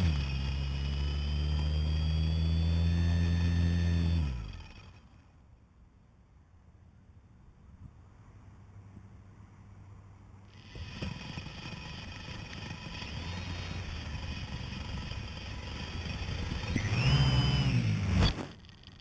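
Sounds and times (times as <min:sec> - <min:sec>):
drone motors whining: 0:00.0 - 0:05.4, 0:10.4 - 0:19.0.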